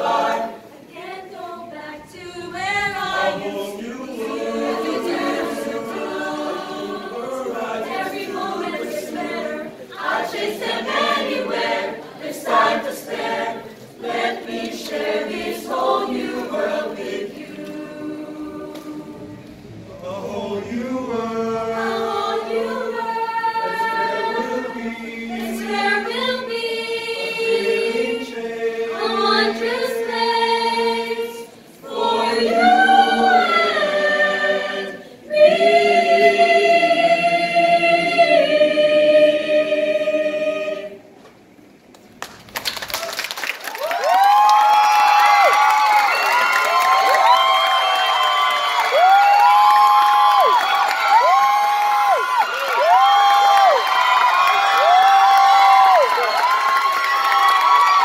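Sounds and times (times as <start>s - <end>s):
mixed choir singing a cappella: 0.0s - 41.2s.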